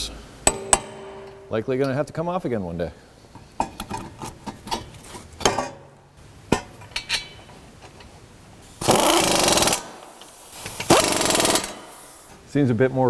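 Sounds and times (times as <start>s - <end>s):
impact wrench burst: 0.5s - 1.6s, 8.8s - 12.1s
metal tools clinking: 6.8s - 8.1s.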